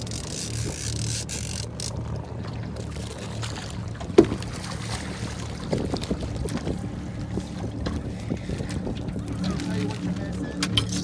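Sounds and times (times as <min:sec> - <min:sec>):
boat engine rumble: 0:00.0 - 0:11.0
small splashes in water: 0:02.4 - 0:06.6.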